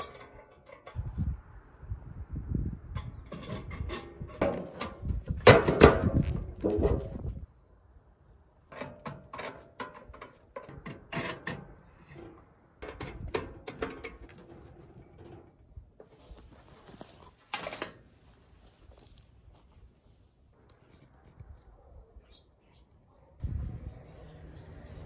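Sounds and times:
metal stove parts clinking and scraping: 0.0 - 1.2, 2.9 - 7.2, 8.7 - 16.2, 17.4 - 18.1.

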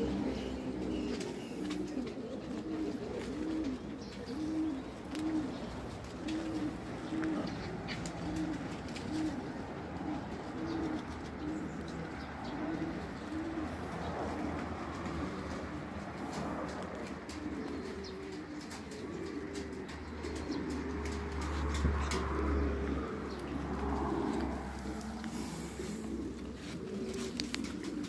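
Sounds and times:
pigeon cooing: 0.0 - 28.0.

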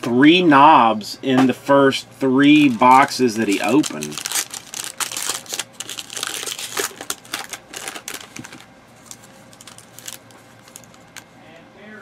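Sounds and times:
plastic wrapper crinkling: 2.5 - 11.3.

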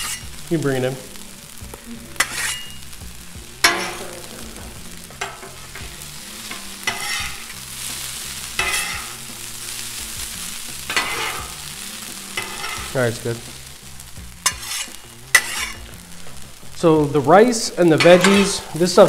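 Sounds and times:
metal spatulas scraping: 0.0 - 0.3, 2.2 - 2.8, 3.6 - 4.3, 5.2 - 7.6, 8.5 - 9.2, 10.9 - 11.6, 12.3 - 13.0, 14.4 - 15.9, 18.0 - 19.0
rice sizzling on a griddle: 0.0 - 19.0.

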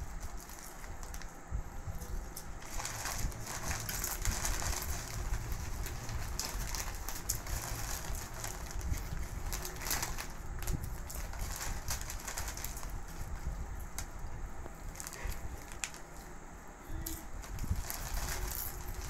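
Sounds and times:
foil chip bags crinkling: 0.0 - 19.0
crunching potato chips: 1.9 - 14.1, 17.2 - 19.0.

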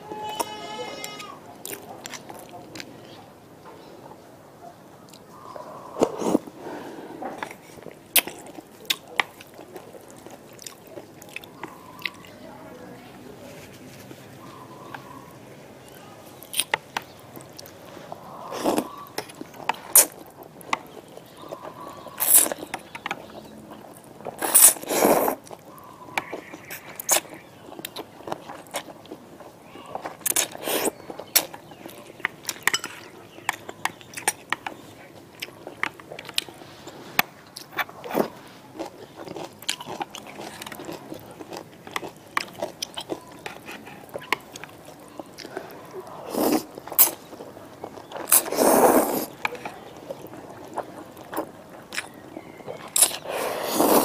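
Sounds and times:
chewing with wet mouth clicks: 1.5 - 3.2, 7.4 - 12.4, 16.4 - 17.8, 18.5 - 36.6, 37.2 - 54.0
slurping noodles: 5.9 - 7.9, 24.3 - 25.6, 46.2 - 47.2, 48.1 - 49.4, 52.9 - 54.0.

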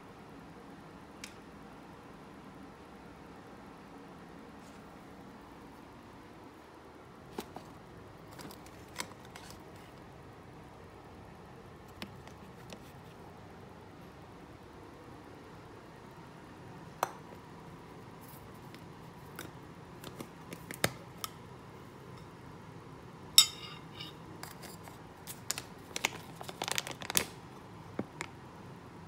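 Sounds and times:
foil pouch crinkling: 25.3 - 27.4.

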